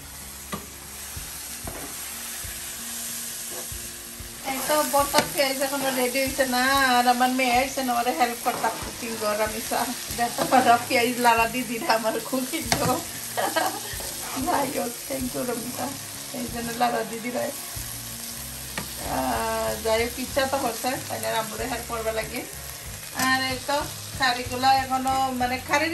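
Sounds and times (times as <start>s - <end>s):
onions sizzling in a frying pan: 0.0s - 25.9s
metal spoon scraping a pan: 4.5s - 6.3s, 13.8s - 14.7s.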